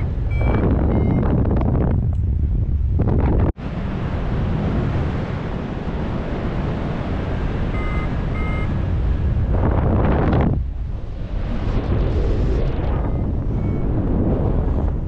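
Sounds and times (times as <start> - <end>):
short electronic beeps: 0.0 - 1.4, 7.8 - 8.7, 13.0 - 13.9
airflow rushing over microphone: 0.0 - 15.0.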